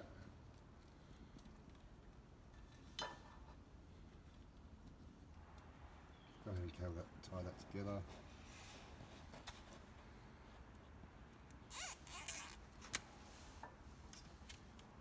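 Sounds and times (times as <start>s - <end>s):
cable ties zipping: 11.7s - 13.1s.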